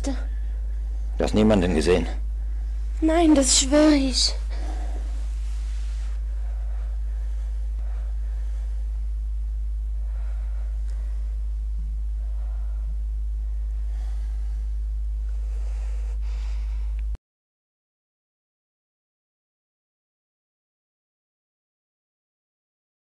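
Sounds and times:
steady deep hum: 0.0 - 17.2.

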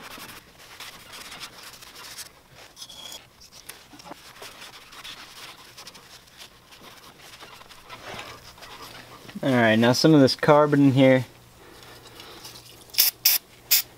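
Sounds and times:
rag rubbing and scratching: 0.0 - 9.9.

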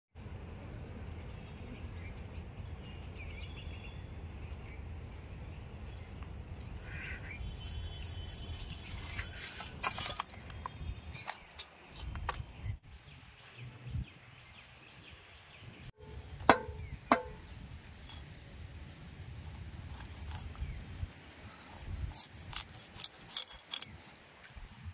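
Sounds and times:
low wind rumble: 0.2 - 24.9
sharp metallic clanks: 16.0 - 17.4.

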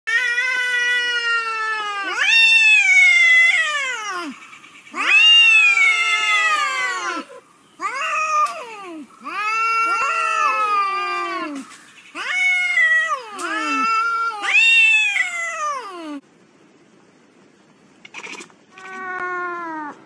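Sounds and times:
cats yowling: 0.1 - 16.2, 18.1 - 20.0.

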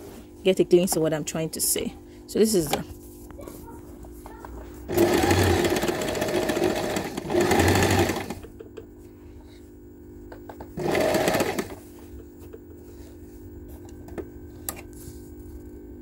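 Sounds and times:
sewing machine stitching: 4.9 - 8.4, 10.8 - 11.8.

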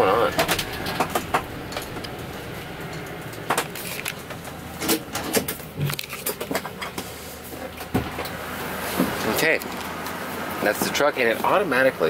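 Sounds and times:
truck engine rumbling: 0.0 - 12.0
clicks and knocks in cab: 0.2 - 2.2.

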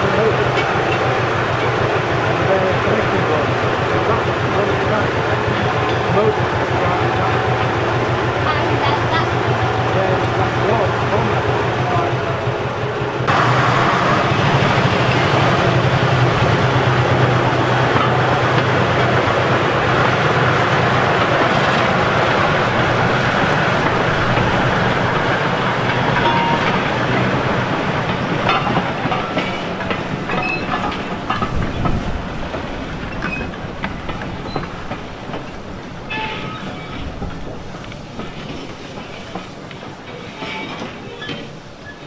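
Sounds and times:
locomotive engine running: 0.0 - 41.9
train wheels clanking over rail joints: 0.0 - 42.0
short wheel squeals: 30.4 - 30.8, 33.1 - 33.5, 36.1 - 37.2, 40.1 - 42.0.

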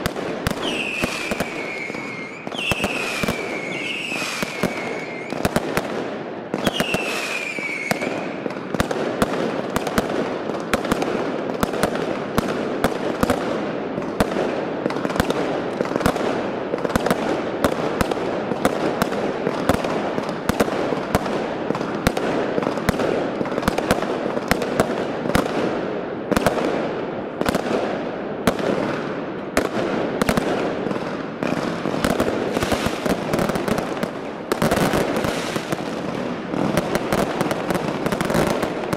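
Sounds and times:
firework bangs: 0.0 - 38.9
firework crackling: 0.0 - 38.9
falling firework whistle: 0.5 - 5.6, 6.6 - 8.4.

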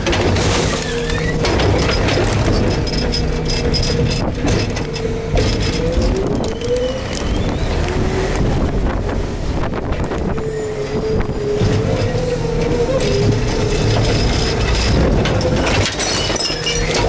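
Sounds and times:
garbage truck whine and rumble: 0.0 - 17.0
wind buffeting microphone: 3.8 - 15.8.

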